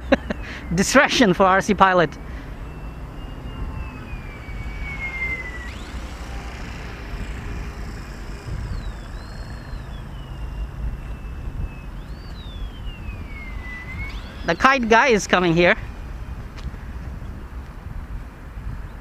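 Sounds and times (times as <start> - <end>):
model plane motor whining: 0.0 - 18.2
wind rumble on microphone: 0.0 - 19.0.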